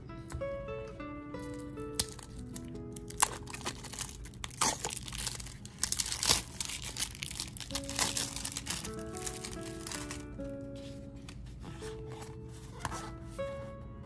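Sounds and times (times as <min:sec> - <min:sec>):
plastic shrink-wrap crinkling and tearing: 0:01.6 - 0:10.4.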